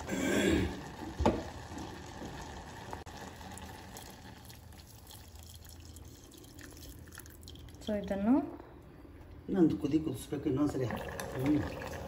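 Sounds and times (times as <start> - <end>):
vegetables simmering in a pot: 0.0 - 8.2
milk pouring into a pot: 0.7 - 8.1, 10.7 - 12.0.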